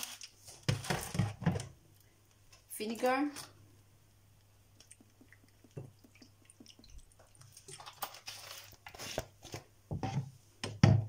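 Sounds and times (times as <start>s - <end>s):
liquid pouring wet clicks: 4.4s - 8.9s.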